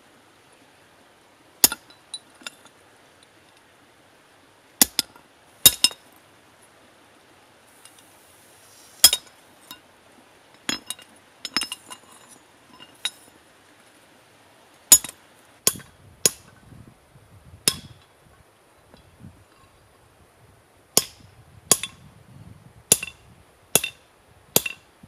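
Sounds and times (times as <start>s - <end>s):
hammer striking metal on anvil: 21.0s - 22.0s, 22.9s - 23.2s, 23.8s - 24.0s, 24.6s - 24.8s.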